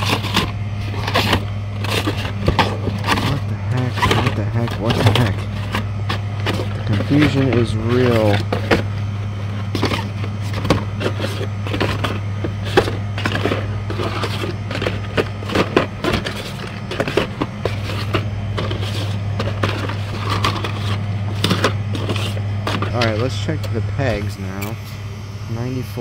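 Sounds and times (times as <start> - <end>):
refrigerator hum: 0.0 - 26.0.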